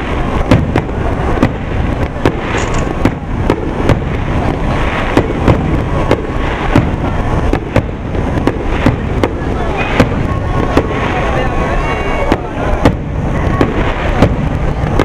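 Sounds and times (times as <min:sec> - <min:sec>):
firework shells bursting: 0:00.0 - 0:11.6.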